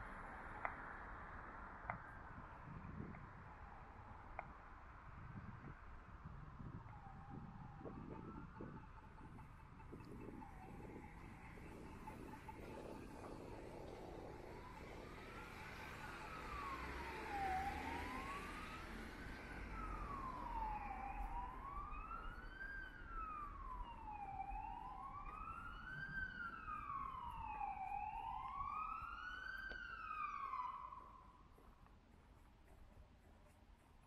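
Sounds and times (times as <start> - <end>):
faint street traffic: 0.0 - 34.0
siren wailing: 6.4 - 31.5.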